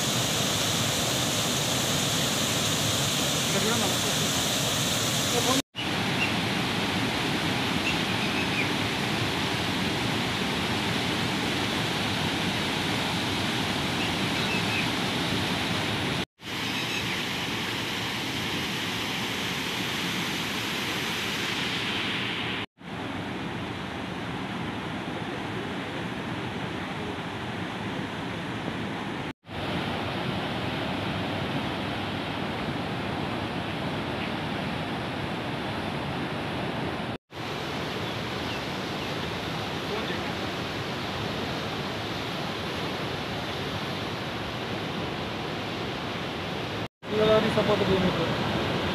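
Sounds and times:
water rushing over rocks: 0.0s - 25.8s, 29.2s - 48.9s.

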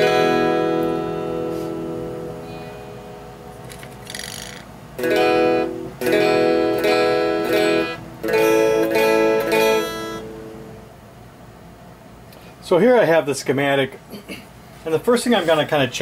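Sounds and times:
electric guitar chords strummed: 0.0s - 4.2s, 4.9s - 10.9s.

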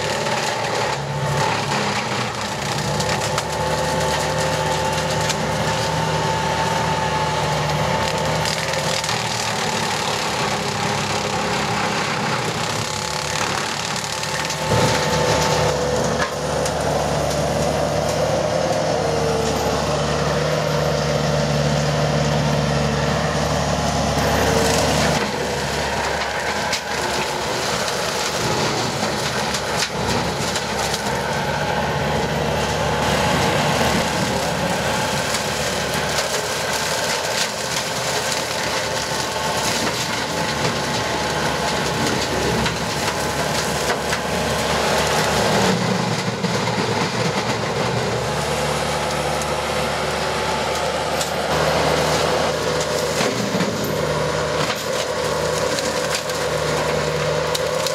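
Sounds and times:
wood cracking and splintering: 0.0s - 20.0s, 23.5s - 57.9s
diesel engine humming: 0.0s - 57.9s
brush cutter blades chewing brush: 24.2s - 31.5s, 32.6s - 57.9s.

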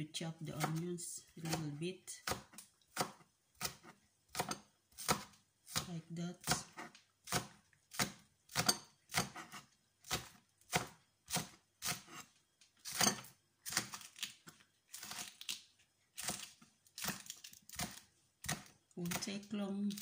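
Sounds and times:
knife chopping on cutting board: 0.6s - 0.8s, 1.4s - 12.3s, 16.2s - 20.0s.

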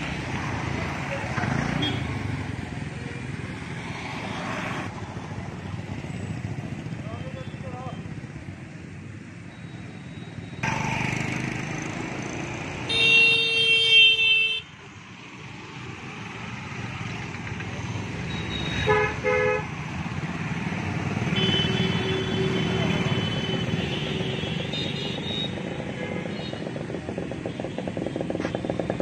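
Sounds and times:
road traffic passing: 0.0s - 29.0s
vehicle horn: 12.9s - 14.7s, 18.6s - 19.7s, 21.3s - 26.6s.

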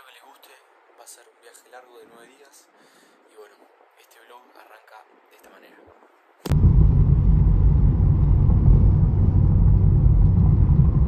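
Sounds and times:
car engine and road noise: 6.5s - 11.0s.

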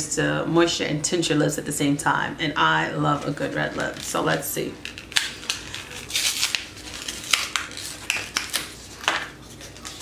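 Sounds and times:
plastic packaging crinkling: 3.2s - 10.0s.

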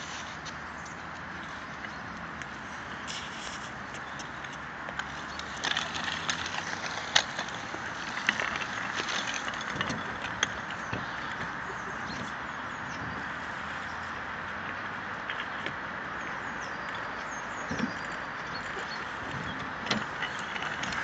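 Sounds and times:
scooter wheels rolling on wet tarmac: 0.0s - 21.0s
steady background noise: 0.0s - 21.0s
sharp clicks and knocks: 4.2s - 12.4s.

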